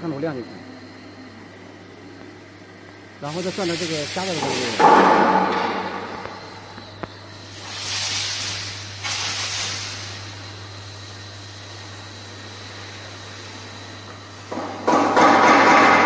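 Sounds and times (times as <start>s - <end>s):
steady low hum: 0.0s - 16.0s
compressed air hissing: 3.2s - 15.6s.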